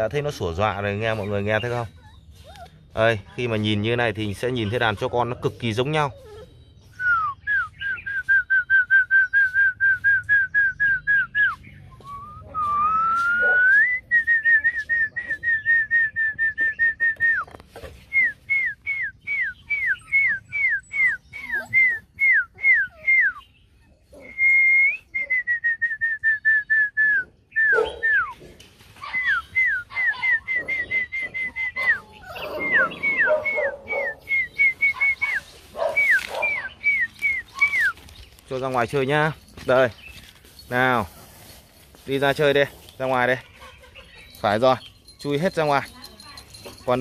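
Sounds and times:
person whistling short notes: 0:07.0 - 0:17.5, 0:24.2 - 0:28.3, 0:36.0 - 0:38.0.

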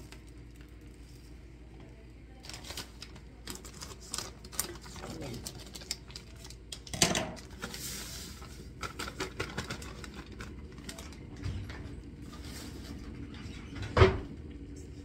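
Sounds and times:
plastic bag crinkling: 0:02.3 - 0:11.4
scissors cutting plastic bag: 0:02.4 - 0:07.5.

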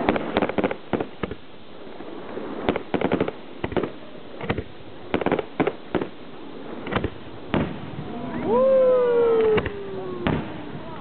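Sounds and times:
firework shells bursting: 0:02.3 - 0:08.5.

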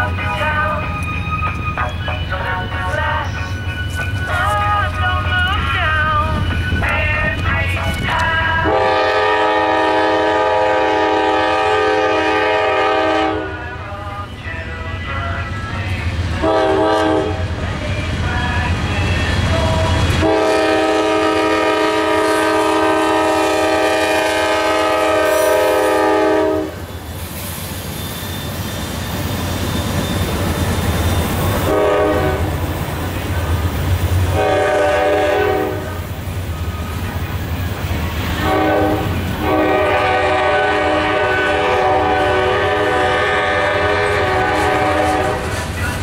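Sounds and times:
train air horn blasts: 0:08.6 - 0:13.7, 0:16.4 - 0:17.5, 0:20.0 - 0:26.9, 0:31.6 - 0:32.6, 0:34.3 - 0:36.1, 0:38.4 - 0:45.7.

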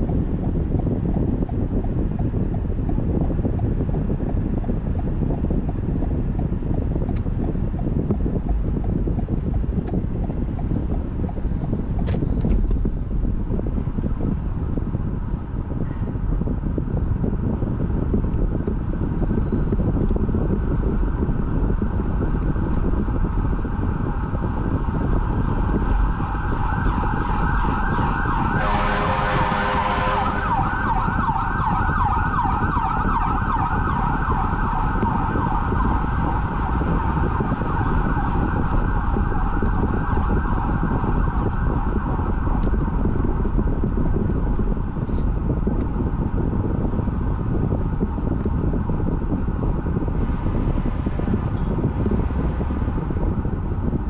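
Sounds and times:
road and engine noise: 0:00.0 - 0:54.0
warbling siren: 0:24.2 - 0:42.7
horn blast: 0:28.6 - 0:30.7.

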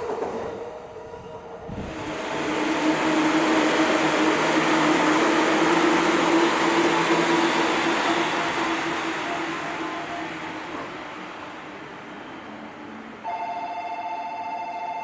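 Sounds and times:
train wheels rumbling on rail: 0:00.0 - 0:13.4
train motor hum: 0:01.6 - 0:13.3.

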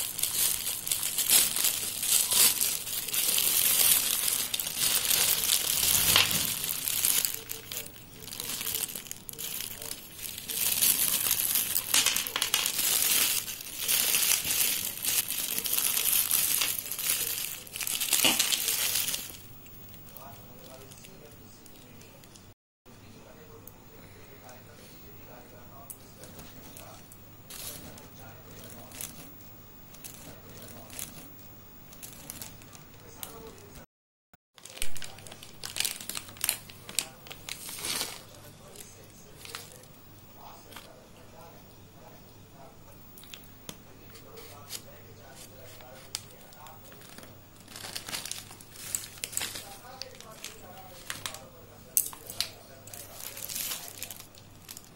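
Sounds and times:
plastic bag crinkling: 0:00.0 - 0:19.5, 0:26.2 - 0:29.3, 0:31.9 - 0:33.8, 0:34.6 - 0:40.9, 0:44.2 - 0:54.9.

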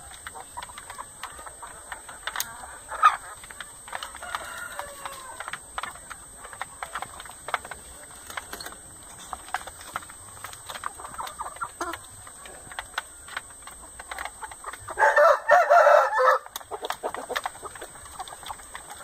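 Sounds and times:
chickens clucking and calling: 0:00.0 - 0:19.0.

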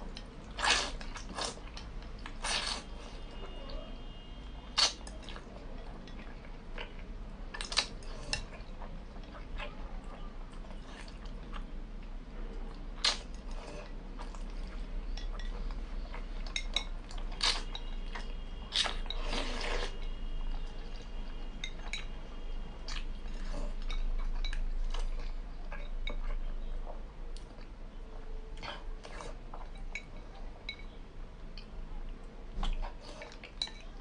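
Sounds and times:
chewing: 0:00.1 - 0:03.8, 0:04.6 - 0:34.0
slurping: 0:00.5 - 0:03.4, 0:13.0 - 0:22.1, 0:32.6 - 0:33.8.

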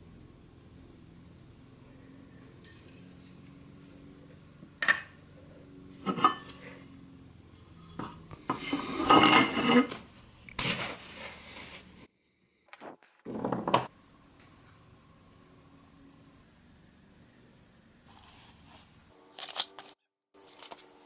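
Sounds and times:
toy parts clattering and scraping: 0:19.3 - 0:20.9.

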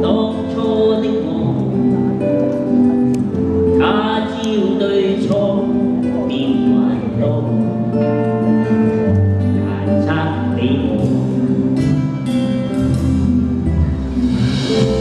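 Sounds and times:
person singing: 0:00.0 - 0:02.4, 0:03.3 - 0:11.8
band backing of held notes: 0:00.0 - 0:15.0
electric guitar: 0:00.0 - 0:15.0.

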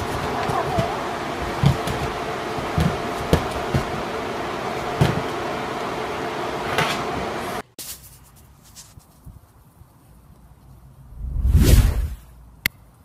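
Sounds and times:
room hum: 0:00.0 - 0:07.7.

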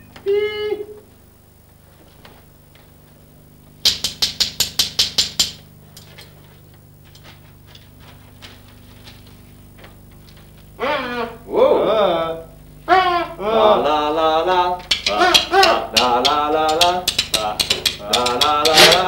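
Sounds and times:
low steady hum: 0:00.0 - 0:19.0
rapid sharp knocks: 0:03.8 - 0:05.6, 0:14.9 - 0:19.0.

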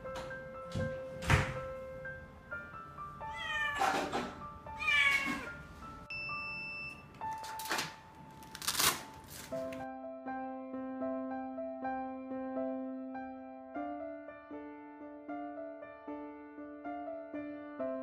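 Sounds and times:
soft piano music: 0:00.0 - 0:18.0
kitten meowing: 0:03.3 - 0:04.0, 0:04.8 - 0:05.6.

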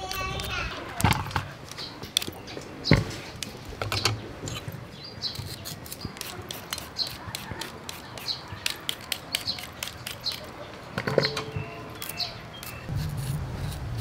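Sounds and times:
birds chirping faintly: 0:00.0 - 0:13.0
peeler scraping a carrot: 0:05.3 - 0:10.5, 0:11.9 - 0:14.0.

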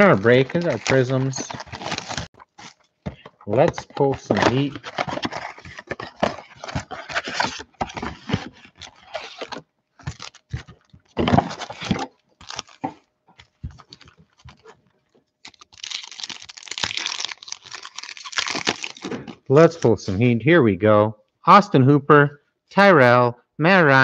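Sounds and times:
foil packs crinkling and tearing: 0:00.0 - 0:14.8, 0:15.4 - 0:19.8.

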